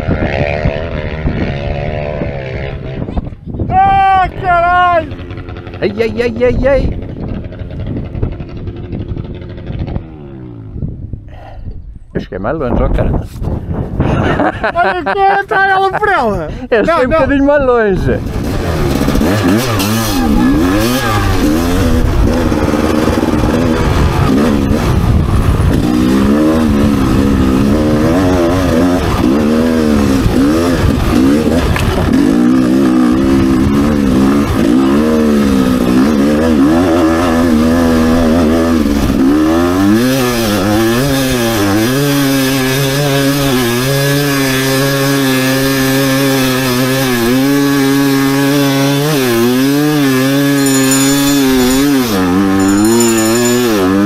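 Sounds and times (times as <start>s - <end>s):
two-stroke motorcycle engine revving: 0.0s - 3.3s, 4.9s - 10.8s, 18.2s - 54.0s.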